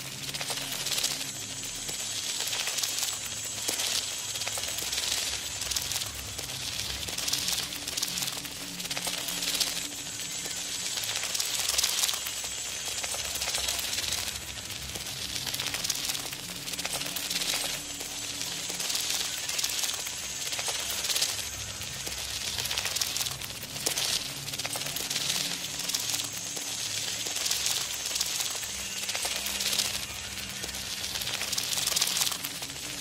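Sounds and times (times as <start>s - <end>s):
steady hiss: 0.0s - 33.0s.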